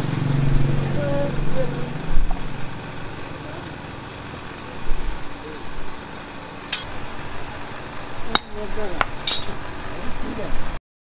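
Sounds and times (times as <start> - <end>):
metal clinks on anvil: 9.3 - 9.6.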